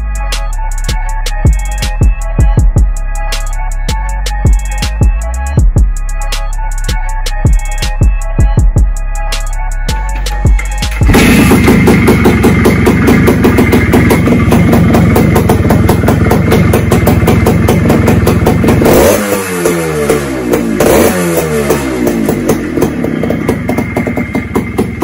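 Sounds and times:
two-stroke engine revving: 10.9s - 25.0s.

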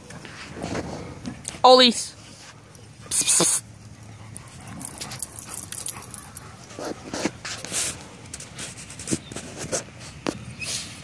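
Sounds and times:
dogs whimpering and yipping: 4.0s - 7.4s.

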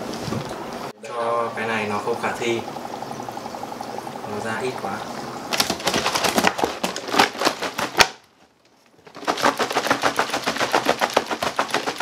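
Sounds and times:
dry ice rattling in plastic jug: 5.5s - 8.3s, 8.9s - 12.0s.

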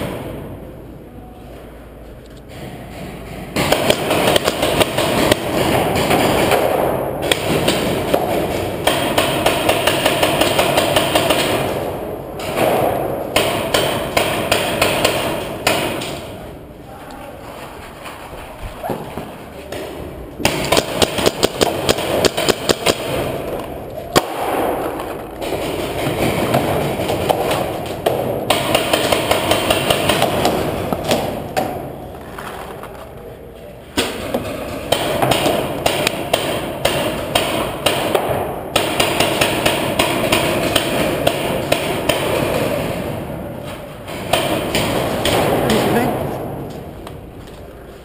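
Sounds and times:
paintball markers firing: 2.9s - 16.4s, 19.0s - 31.9s, 34.0s - 43.2s.

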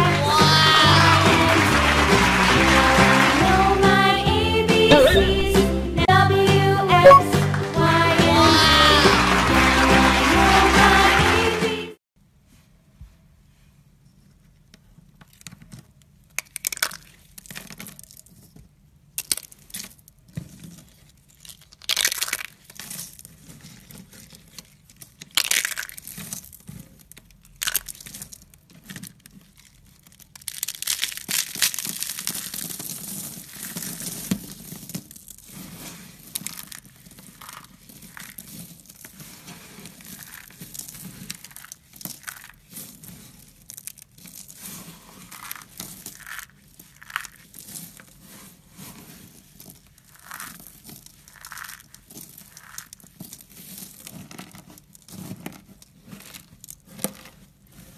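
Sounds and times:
brittle shavings cracking and crunching: 16.4s - 18.5s, 19.2s - 57.9s
flakes rubbed between palms: 29.5s - 57.0s.

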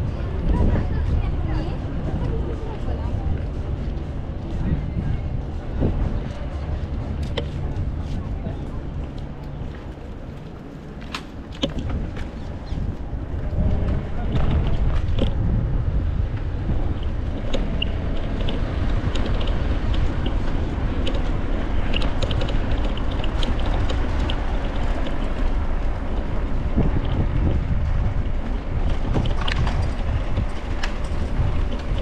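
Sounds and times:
bicycle tyres rolling on bricks: 0.0s - 32.0s
wind buffeting microphone: 0.0s - 32.0s
light clicks and rattles: 16.3s - 27.2s, 28.2s - 32.0s.

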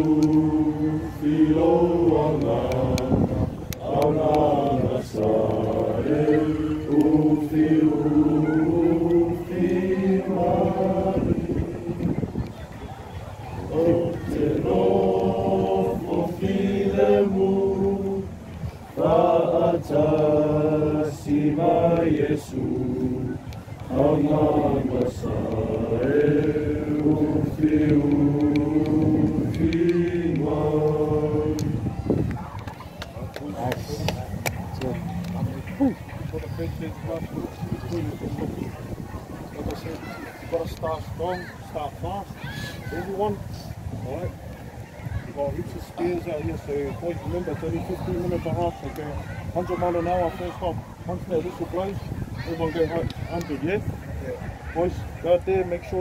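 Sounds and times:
boys singing unaccompanied: 0.0s - 12.5s, 13.6s - 32.3s.

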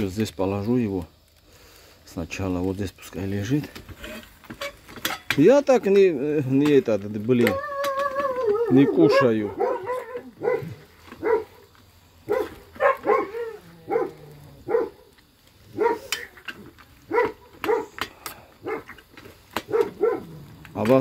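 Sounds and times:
dog whining and yipping: 7.5s - 11.5s.

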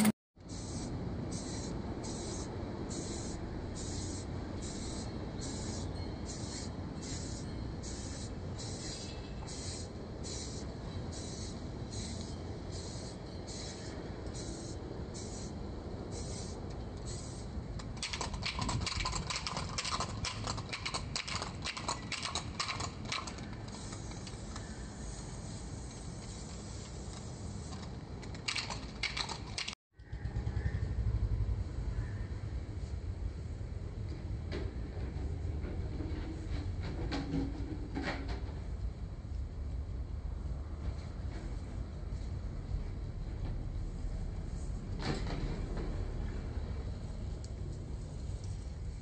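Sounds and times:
spray-paint can hissing: 0.0s - 17.5s, 23.7s - 27.8s
rapid clicking and rattling: 17.8s - 24.7s, 27.1s - 29.8s.

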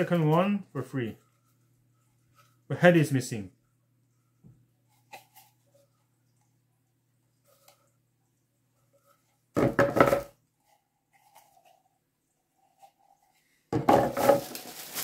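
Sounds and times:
plastic bag rustling: 13.8s - 15.0s
plastic pieces clattering: 14.0s - 15.0s.

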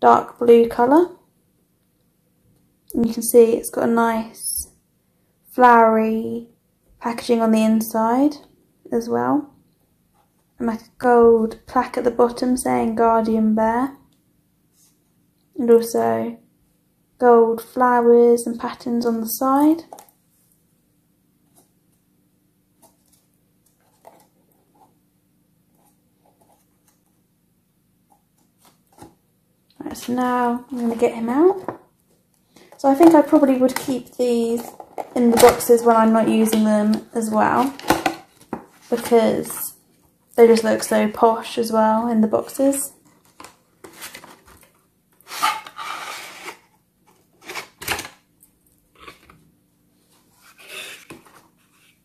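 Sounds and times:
cardboard flaps scraping: 43.2s - 47.8s, 50.2s - 52.0s.

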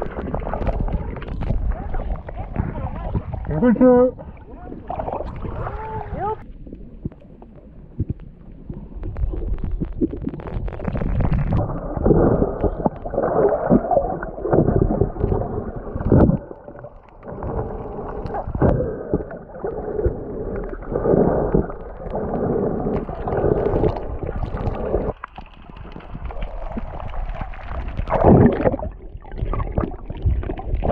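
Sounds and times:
muffled underwater rushing water: 0.0s - 30.9s.

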